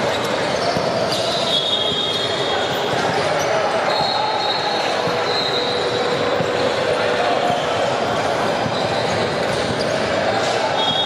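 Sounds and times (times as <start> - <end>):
basketballs bouncing on wood floor: 0.0 - 2.1, 2.8 - 4.3, 4.9 - 10.0
echoing gymnasium din: 0.0 - 11.0.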